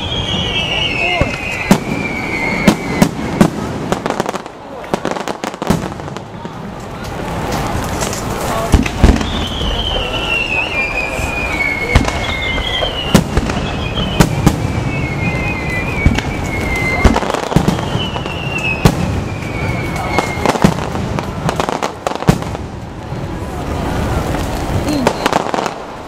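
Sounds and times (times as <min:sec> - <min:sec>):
firework whistles falling in pitch: 0:00.0 - 0:04.2, 0:09.0 - 0:21.0
fireworks bangs and crackling: 0:00.0 - 0:26.0.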